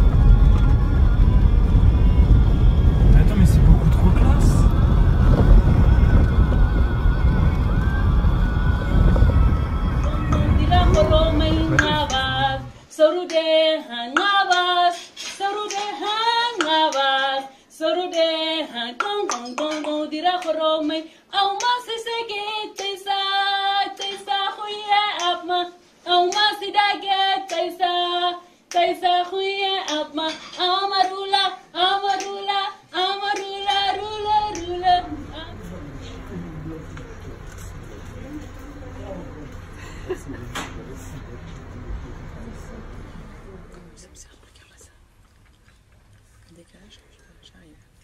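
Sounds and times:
woman singing unaccompanied: 5.0s - 35.9s
sharp hand claps: 14.2s - 16.0s, 19.0s - 21.0s, 21.6s - 21.8s, 22.8s - 23.0s, 24.0s - 24.3s, 25.2s - 25.4s, 27.5s - 27.7s, 28.7s - 29.0s, 29.8s - 31.2s, 32.0s - 32.4s.

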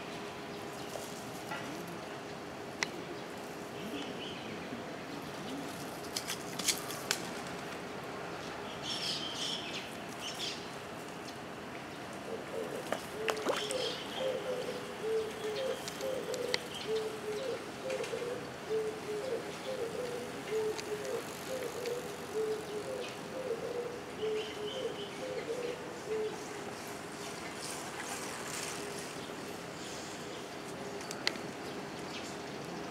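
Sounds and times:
pigeon cooing: 12.2s - 26.6s.

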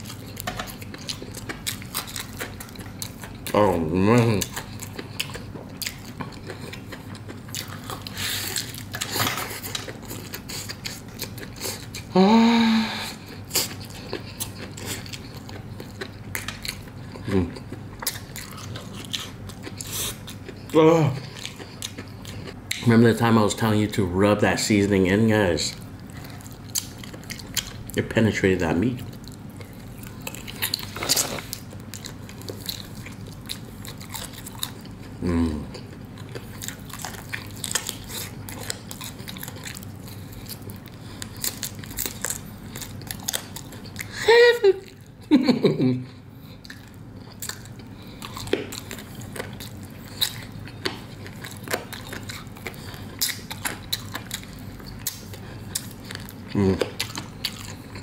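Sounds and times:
crunchy chewing of fried chicken: 0.0s - 58.0s
person humming: 12.1s - 13.1s, 35.2s - 35.7s, 56.5s - 56.9s
crunching fried chicken skin: 25.6s - 45.2s.

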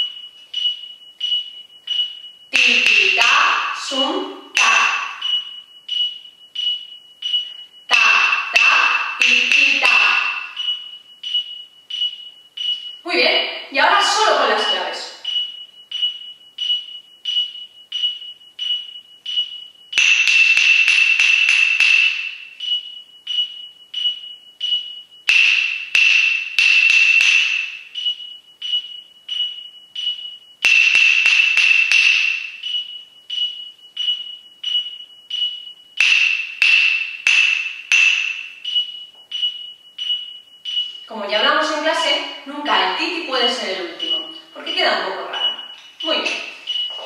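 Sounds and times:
metronome beeping: 0.0s - 47.0s
wooden claves struck: 20.0s - 22.5s, 25.3s - 27.9s, 30.6s - 32.6s, 36.0s - 38.6s.

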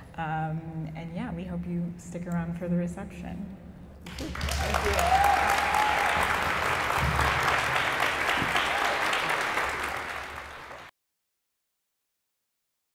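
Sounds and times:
audience applauding: 4.1s - 10.9s.

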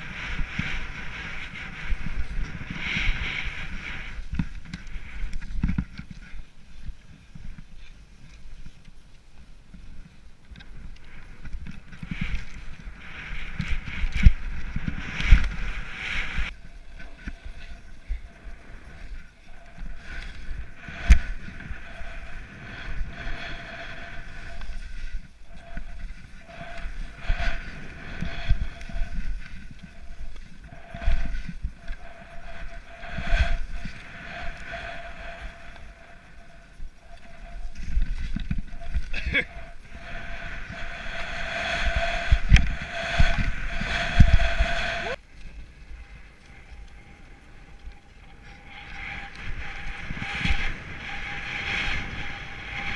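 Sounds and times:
skis running through powder snow: 0.0s - 47.5s
wind buffeting microphone: 0.0s - 52.9s.

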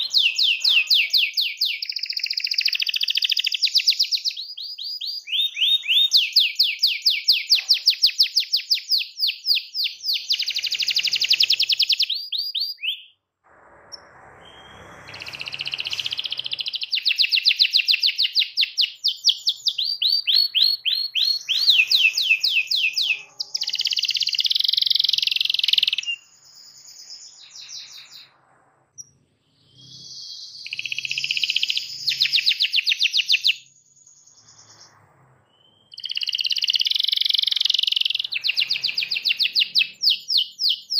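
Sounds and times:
canary singing trills: 0.0s - 13.2s, 14.4s - 28.3s, 29.0s - 40.9s.

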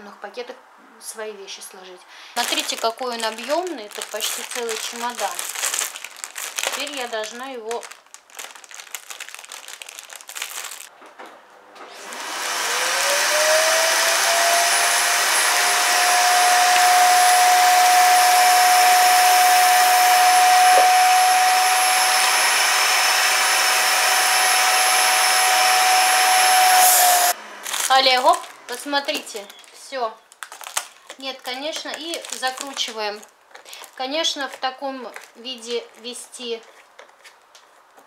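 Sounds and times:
plastic bag rustling: 2.4s - 10.9s, 27.6s - 38.0s
vacuum cleaner motor drone: 11.8s - 27.7s
rush of air through hose: 25.9s - 27.4s.

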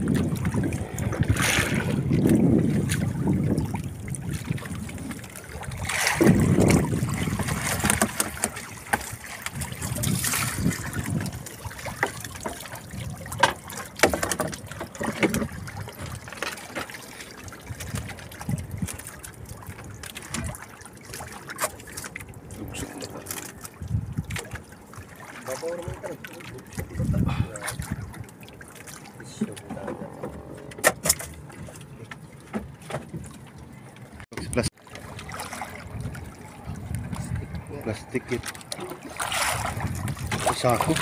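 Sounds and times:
wind rumble on microphone: 0.0s - 12.1s, 12.8s - 13.6s, 17.6s - 20.6s, 22.4s - 24.6s, 26.7s - 28.3s, 35.6s - 38.2s, 39.3s - 41.0s
water splashing and pouring: 0.0s - 41.0s.

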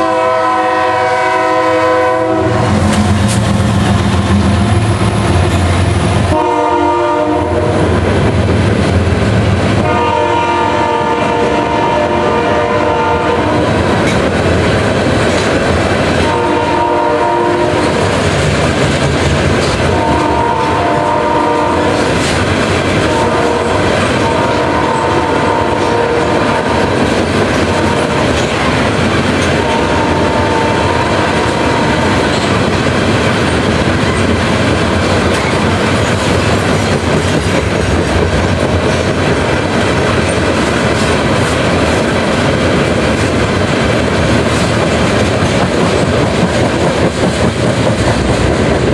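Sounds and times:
freight train rumbling past: 0.0s - 48.9s
wheels clacking over rail joints: 13.6s - 16.4s, 17.7s - 20.8s, 21.9s - 30.6s, 31.3s - 48.9s.

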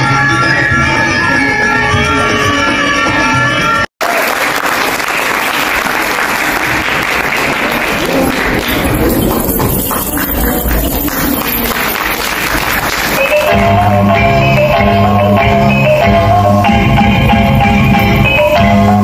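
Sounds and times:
music: 0.0s - 3.9s, 8.0s - 19.0s
audience applauding: 4.0s - 13.7s.

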